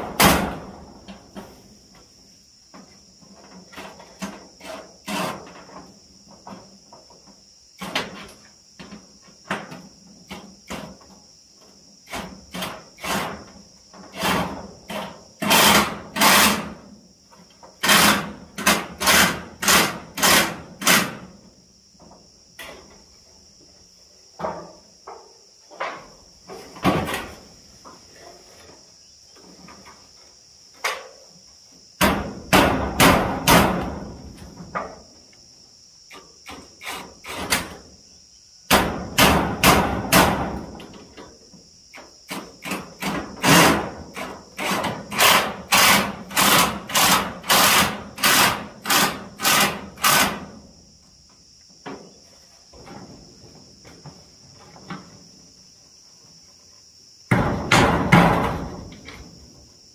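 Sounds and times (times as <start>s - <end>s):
crickets droning: 0.0s - 59.9s.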